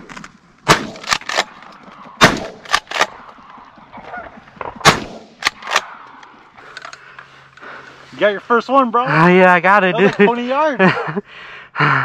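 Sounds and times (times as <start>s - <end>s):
shotgun blasts: 0.6s - 1.6s, 2.2s - 3.2s, 4.8s - 5.9s
geese honking: 3.0s - 4.8s.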